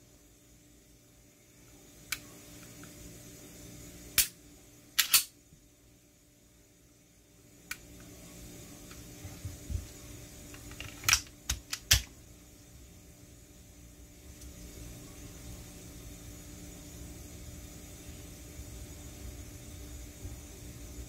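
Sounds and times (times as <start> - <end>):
pistol metallic clicks and clacks: 5.0 - 5.3.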